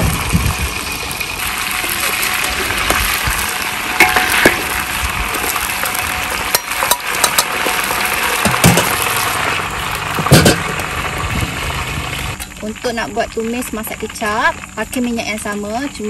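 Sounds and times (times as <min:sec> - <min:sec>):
metal skimmer scraping wok: 0:00.0 - 0:12.7
chicken sizzling in hot oil: 0:00.0 - 0:16.0.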